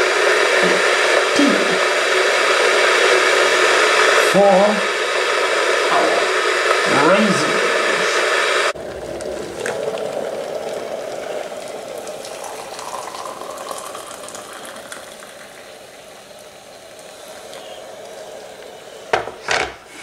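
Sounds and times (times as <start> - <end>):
water pouring into a mug: 8.8 - 19.2
kettle knocking on its base: 19.1 - 19.7.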